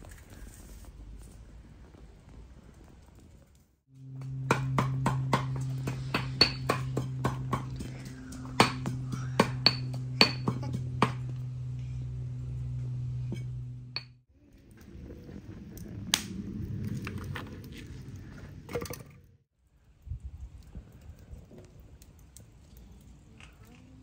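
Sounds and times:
steady low hum: 3.9 - 16.8
low rushing noise: 4.0 - 14.1.

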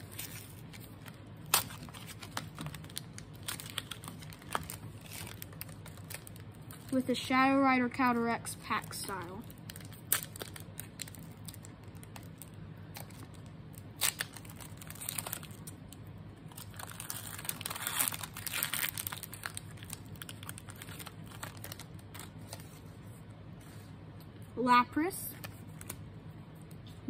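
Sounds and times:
foil wrapper tearing and crinkling: 0.0 - 7.1, 8.8 - 22.8.

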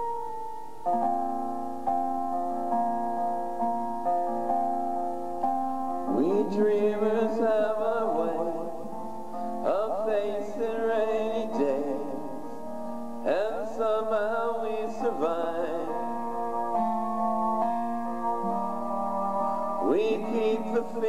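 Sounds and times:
piano and keyboard accompaniment: 0.0 - 21.0
man singing pop ballad: 6.1 - 9.0, 9.6 - 12.6, 13.2 - 16.2, 19.8 - 21.0.

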